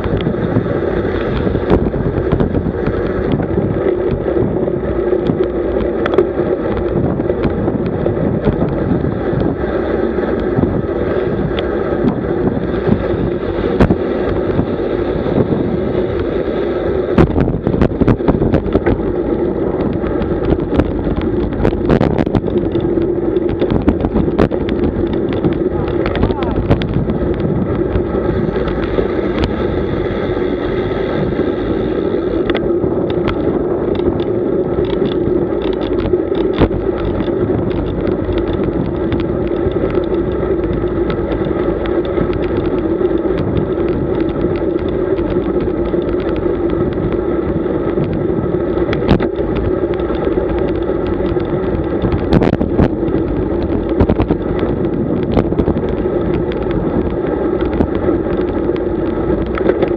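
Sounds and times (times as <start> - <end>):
tyre on road noise: 0.0 - 59.9
wind on microphone: 0.0 - 59.9
small clicks and knocks: 5.2 - 9.6, 19.8 - 29.6, 32.4 - 59.9.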